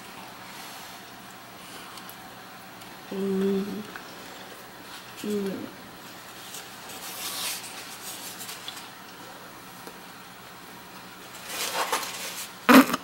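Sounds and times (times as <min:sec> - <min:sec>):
fork scraping on paper plate: 0:06.4 - 0:08.7, 0:11.4 - 0:12.6.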